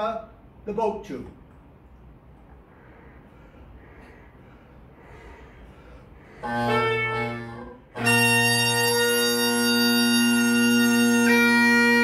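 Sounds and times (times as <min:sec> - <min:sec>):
bagpipe playing: 0:06.4 - 0:12.0.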